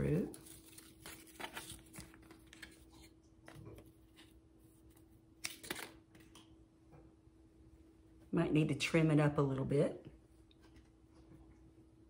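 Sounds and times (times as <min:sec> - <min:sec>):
cardboard and yarn rustling: 0:00.0 - 0:05.2.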